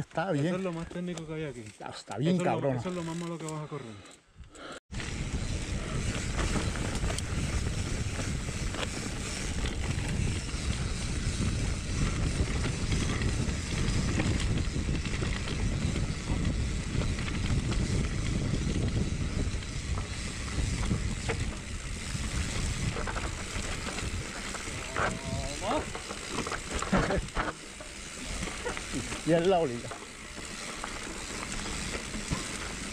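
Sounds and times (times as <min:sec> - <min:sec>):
wind rumbling on microphone: 0:04.9 - 0:27.5.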